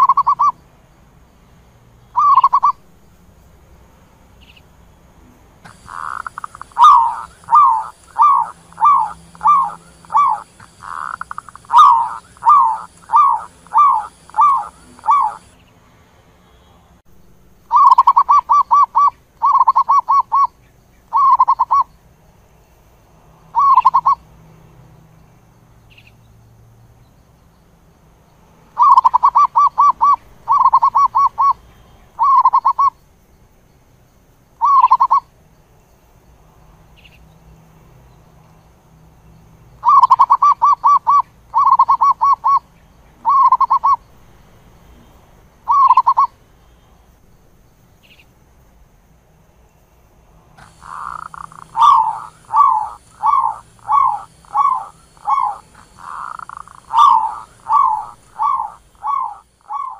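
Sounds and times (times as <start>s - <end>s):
dove cooing: 0.0s - 0.5s, 2.2s - 2.8s, 5.7s - 15.5s, 17.7s - 20.5s, 21.1s - 21.9s, 23.6s - 24.2s, 28.8s - 31.6s, 32.2s - 32.9s, 34.6s - 35.2s, 39.8s - 42.6s, 43.2s - 44.0s, 45.7s - 46.3s, 50.6s - 59.9s.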